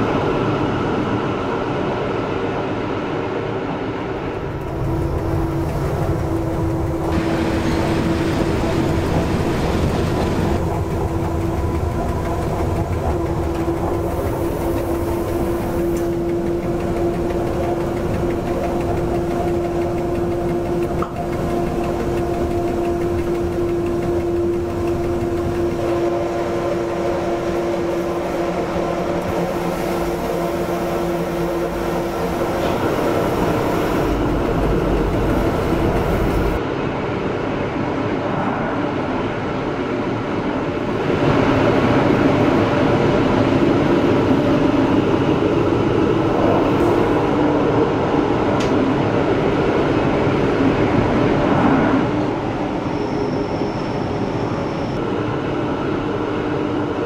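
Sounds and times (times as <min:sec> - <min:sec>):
electric train running on track: 0:00.0 - 0:57.0
steady hum: 0:04.4 - 0:36.6.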